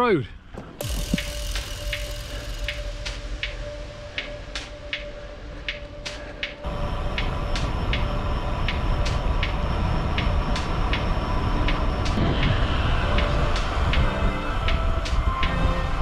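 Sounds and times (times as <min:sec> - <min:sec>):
background music with ticking percussion: 0:00.8 - 0:16.0
wind and road rumble: 0:02.9 - 0:16.0.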